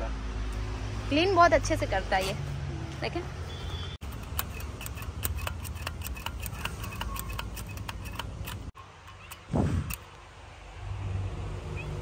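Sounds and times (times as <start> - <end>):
grooming brush clicking: 4.0 - 10.0.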